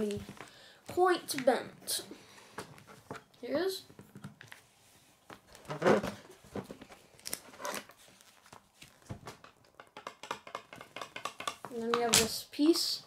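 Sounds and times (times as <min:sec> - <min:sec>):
paper booklet rustling: 0:04.4 - 0:09.4.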